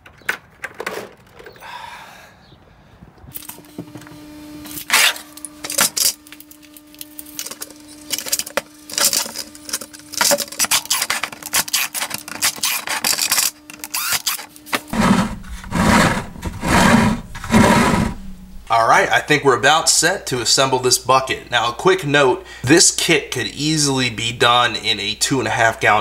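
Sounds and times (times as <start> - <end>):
cordless drill boring plastic: 3.4 - 18.7.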